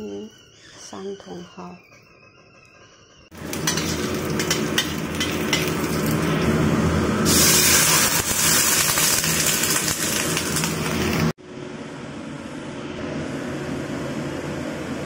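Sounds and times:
water hissing in hot wok: 3.4s - 6.5s, 7.2s - 11.3s
garlic sizzling in oil: 3.4s - 6.6s, 7.2s - 11.3s.

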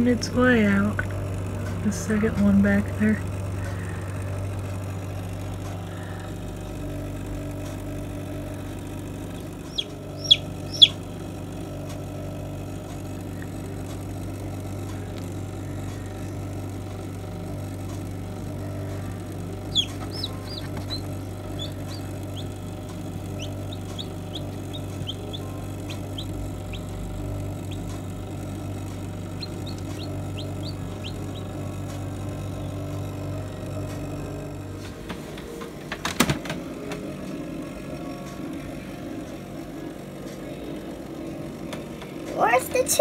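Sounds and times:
computer fan hum: 0.0s - 43.0s
chicks peeping: 9.4s - 11.0s, 19.7s - 22.6s, 23.3s - 26.9s, 27.6s - 28.0s, 29.4s - 31.6s.

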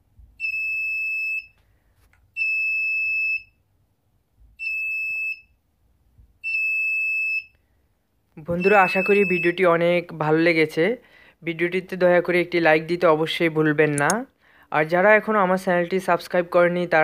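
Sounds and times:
piezo buzzer beeping: 8.5s - 9.6s.

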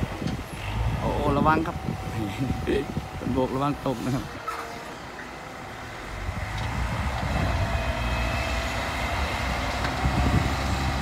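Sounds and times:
diesel truck engine rumbling: 0.0s - 11.0s.

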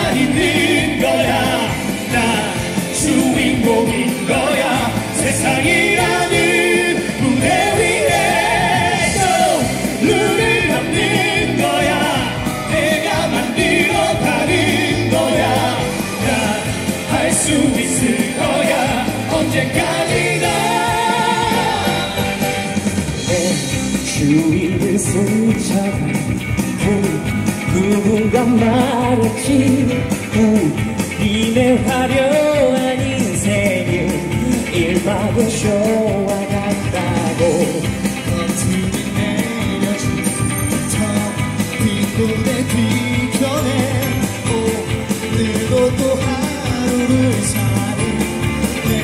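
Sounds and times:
backing music with steady beat: 0.0s - 49.0s
male vocal group singing: 0.0s - 49.0s.

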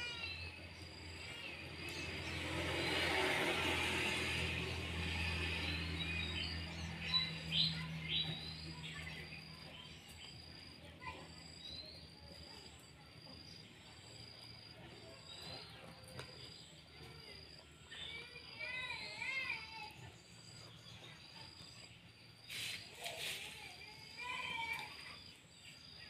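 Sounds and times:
low engine hum: 0.0s - 10.4s
high insect chirps: 0.0s - 26.0s.

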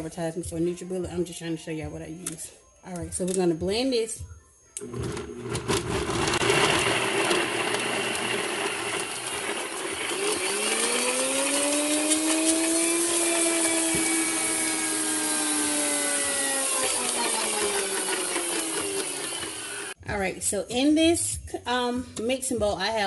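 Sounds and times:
blender motor whining: 4.8s - 20.0s.

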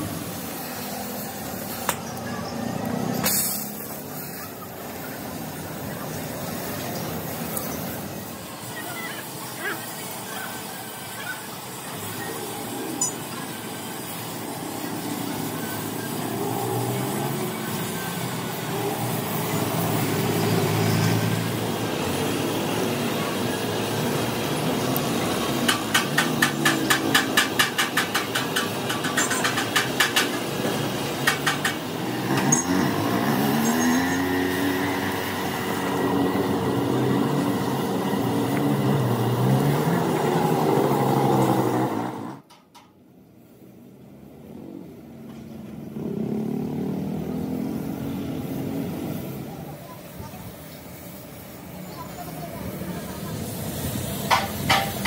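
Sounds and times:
engine running and revving: 0.0s - 8.7s, 11.8s - 42.5s, 44.2s - 49.8s.

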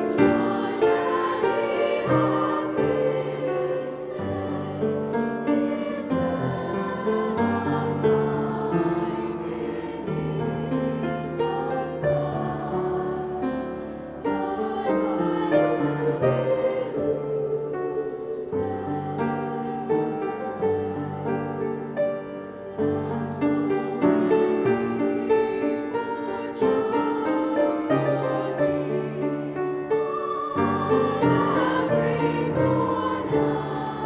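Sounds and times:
choir singing in parts: 0.0s - 34.0s
upright piano accompaniment: 0.0s - 34.0s.

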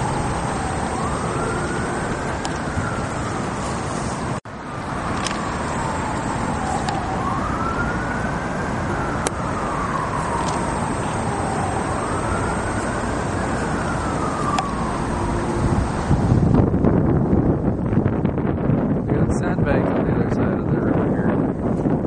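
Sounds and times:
siren wailing: 0.0s - 17.3s
steady rush of noise: 0.0s - 22.0s.

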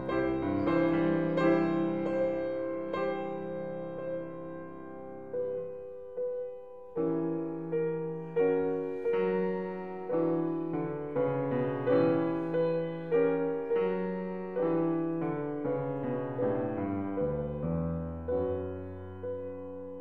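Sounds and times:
slow piano chords: 0.0s - 20.0s.

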